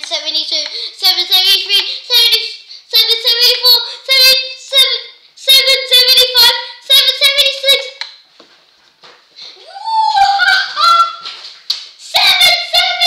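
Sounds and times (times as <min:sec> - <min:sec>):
child chanting numbers: 0:00.0 - 0:08.1, 0:12.0 - 0:13.0.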